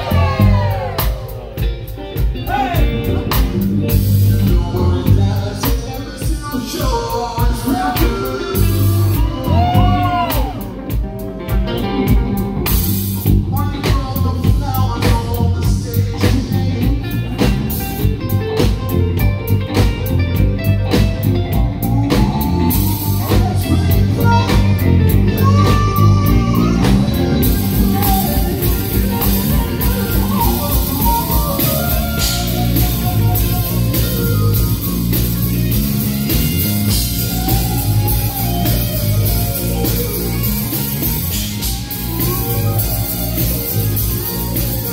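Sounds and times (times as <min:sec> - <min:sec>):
drum kit: 0:00.0 - 0:44.9
electric guitars: 0:00.0 - 0:44.9
keyboard: 0:00.0 - 0:44.9.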